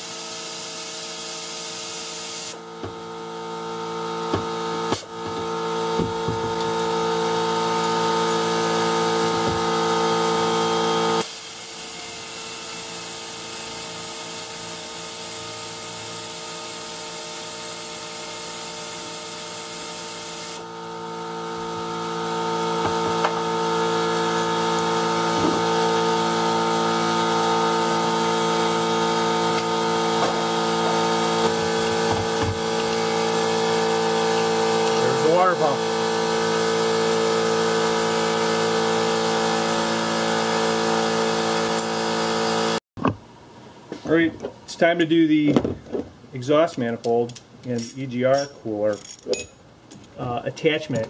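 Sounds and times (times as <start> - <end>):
air tool on bolts: 0.0 - 2.6, 4.8 - 5.3, 11.1 - 20.7
loud hiss of air: 11.2 - 12.0
steady mechanical hum: 43.0 - 51.0.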